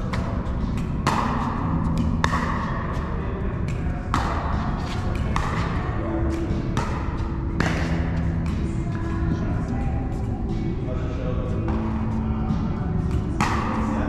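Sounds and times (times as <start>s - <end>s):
pickleball paddle hitting ball: 0.1s - 8.7s, 13.0s - 14.0s.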